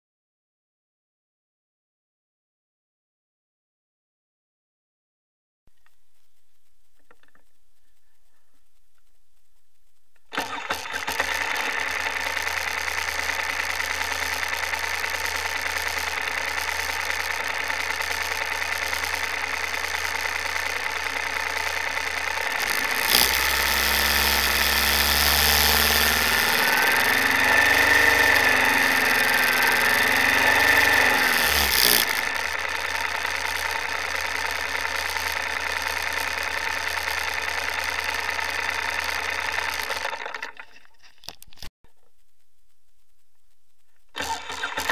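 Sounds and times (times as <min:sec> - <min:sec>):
motorcycle engine idling and revving: 0:10.3 - 0:40.6, 0:44.1 - 0:44.9.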